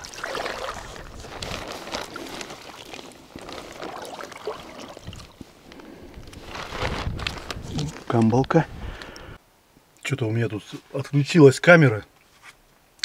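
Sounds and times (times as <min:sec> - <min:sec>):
water splashes and drips: 0:00.0 - 0:05.4.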